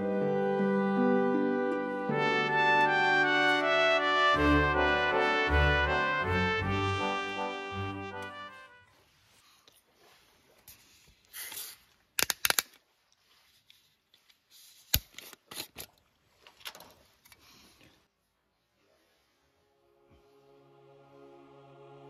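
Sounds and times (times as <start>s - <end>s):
soft rustling: 8.8s - 11.9s, 12.8s - 14.9s.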